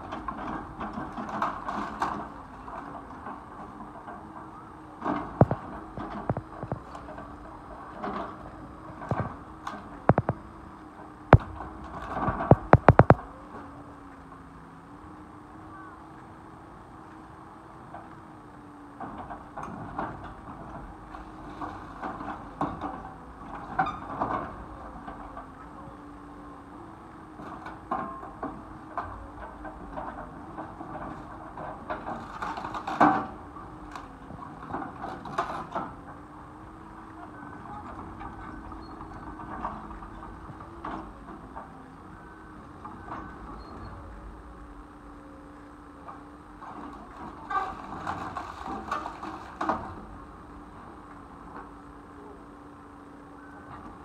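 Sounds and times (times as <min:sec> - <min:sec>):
excavator engine hum: 0:00.0 - 0:54.0
sharp knocks: 0:12.4 - 0:13.2
wood and metal crunching: 0:47.0 - 0:50.0.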